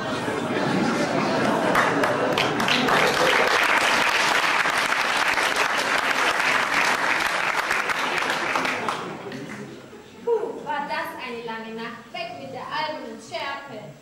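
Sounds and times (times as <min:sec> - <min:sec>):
audience clapping: 0:01.1 - 0:09.7.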